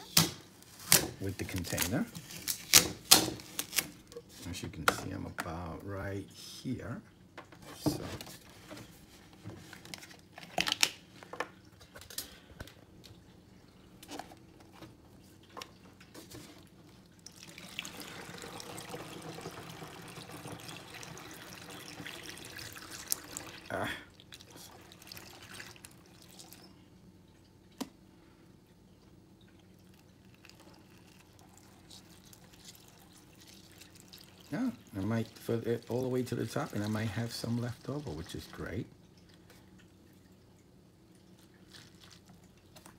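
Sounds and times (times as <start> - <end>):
liquid pouring into jug: 12.9 - 28.0, 29.3 - 42.9.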